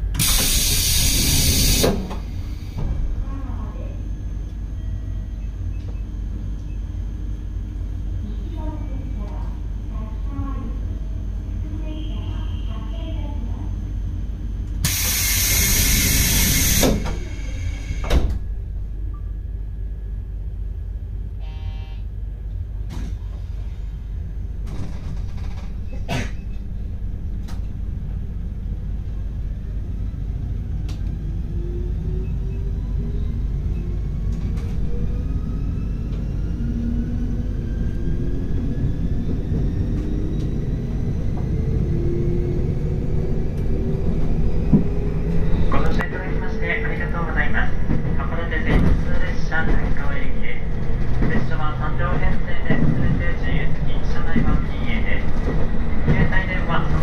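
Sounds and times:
train rumbling: 0.0 - 21.4, 22.2 - 57.0
train motor whine rising: 0.1 - 2.8, 14.8 - 18.2
loud hiss: 14.8 - 18.0.

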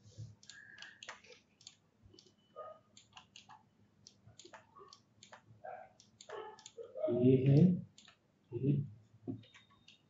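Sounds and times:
mouse and keyboard clicking: 0.3 - 2.4, 3.0 - 6.9, 7.9 - 8.2.

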